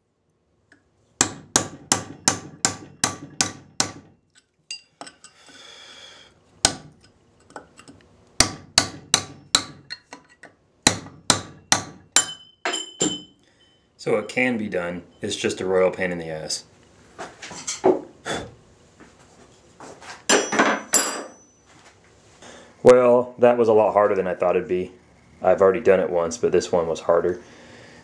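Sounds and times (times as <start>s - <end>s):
hammer striking metal: 1.2s - 4.1s, 8.4s - 10.2s, 10.9s - 13.4s.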